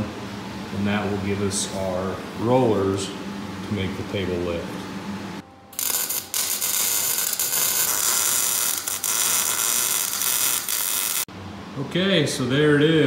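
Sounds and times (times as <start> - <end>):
welding arc hissing buzz: 5.7 - 11.3.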